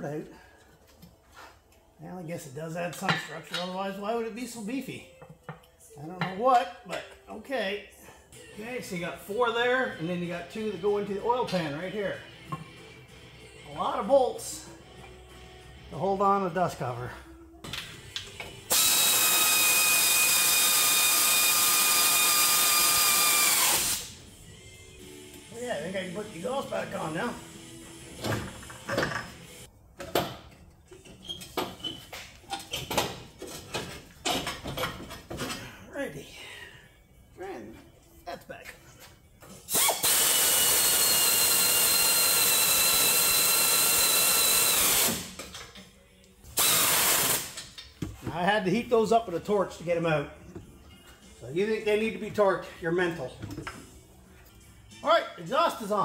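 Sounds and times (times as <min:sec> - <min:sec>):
air ratchet whining: 0:18.7 - 0:24.2, 0:39.7 - 0:45.5, 0:46.6 - 0:47.8.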